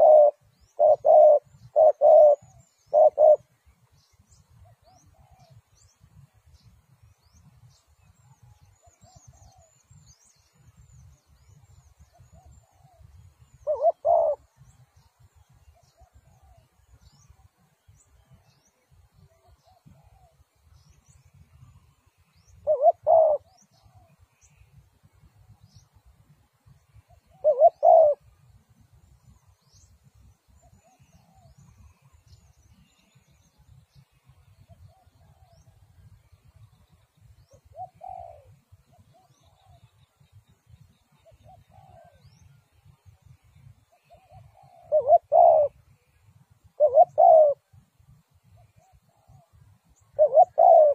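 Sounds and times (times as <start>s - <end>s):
dove cooing: 0.0s - 3.5s, 4.6s - 5.7s, 12.1s - 14.7s, 19.4s - 20.5s, 22.6s - 24.2s, 27.1s - 28.3s, 37.5s - 39.9s, 41.1s - 42.6s, 43.9s - 45.8s, 46.7s - 47.7s, 50.1s - 50.9s
small birds chirping: 0.0s - 50.9s.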